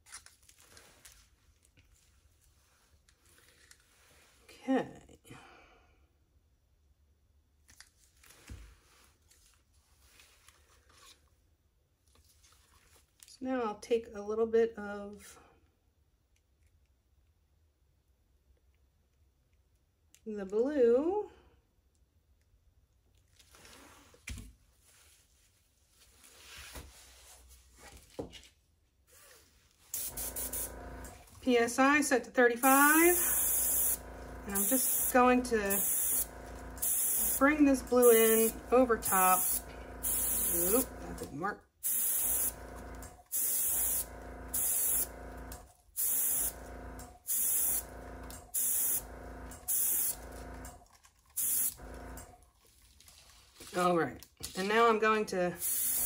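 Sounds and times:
compressed air bursts: 0:30.0 - 0:31.2, 0:32.6 - 0:50.7, 0:51.4 - 0:52.2, 0:55.6 - 0:56.0
soft handling hiss: 0:32.6 - 0:41.2.

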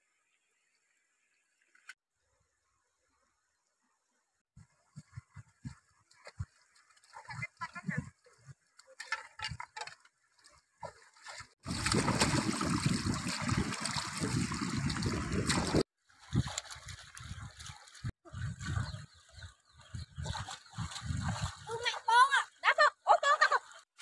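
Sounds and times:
hands splashing water in stream: 0:08.9 - 0:18.8.

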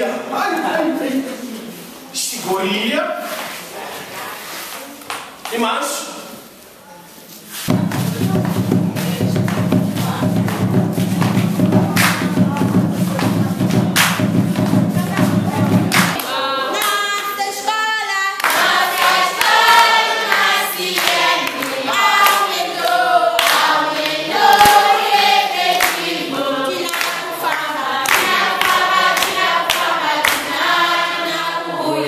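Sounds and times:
music with pulsing beat: 0:07.7 - 0:16.2
hand claps: 0:07.7 - 0:17.0, 0:18.4 - 0:30.6
children singing together: 0:15.0 - 0:32.0.

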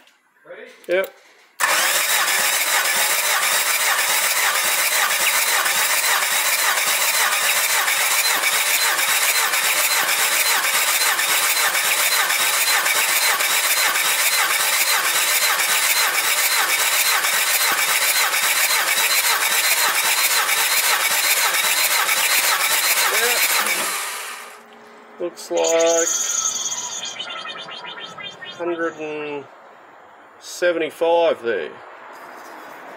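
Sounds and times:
starter motor cranking engine: 0:01.6 - 0:24.6.

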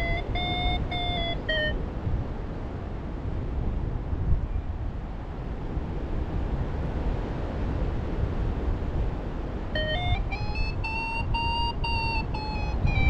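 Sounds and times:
variometer beeping: 0:00.0 - 0:01.8, 0:09.8 - 0:13.0
wind on microphone: 0:00.0 - 0:13.0.

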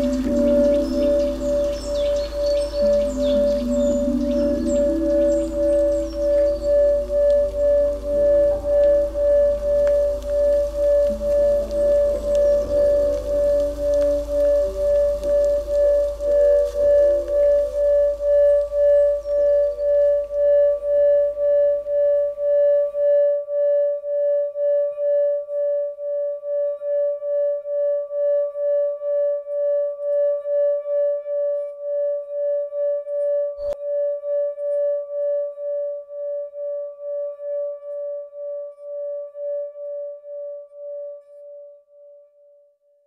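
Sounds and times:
low hum: 0:00.0 - 0:23.3
singing bowl ringing: 0:00.0 - 0:26.0.

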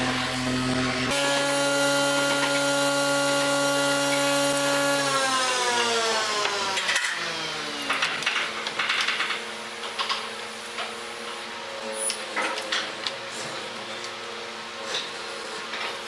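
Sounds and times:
power tool motor running: 0:00.0 - 0:08.0
clicks and knocks of tools: 0:06.4 - 0:07.2, 0:07.8 - 0:11.0, 0:12.0 - 0:13.2.

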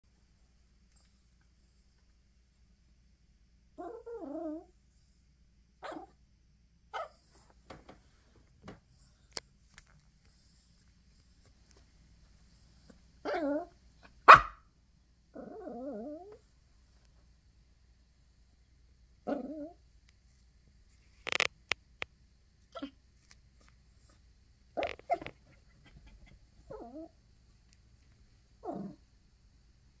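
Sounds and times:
small dog whining: 0:03.8 - 0:04.7, 0:13.2 - 0:13.7, 0:15.4 - 0:16.4, 0:19.3 - 0:19.8, 0:24.8 - 0:27.2, 0:28.6 - 0:29.0
dog whining and crying: 0:13.3 - 0:13.7, 0:26.7 - 0:27.1.

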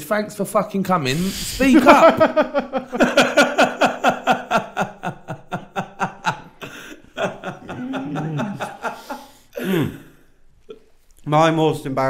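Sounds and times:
men laughing hard: 0:01.6 - 0:10.0.

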